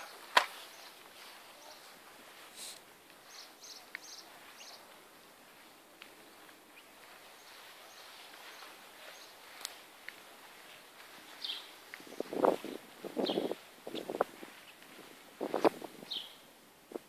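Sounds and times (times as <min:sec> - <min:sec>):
bird chirps: 0:00.0 - 0:01.9, 0:03.2 - 0:05.0, 0:06.4 - 0:09.6, 0:11.2 - 0:14.8, 0:16.0 - 0:16.5.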